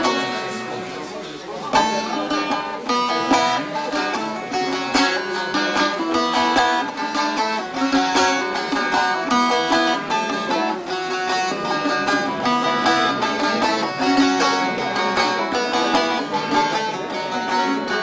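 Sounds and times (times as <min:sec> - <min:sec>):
lute strummed and picked: 0:00.0 - 0:18.0.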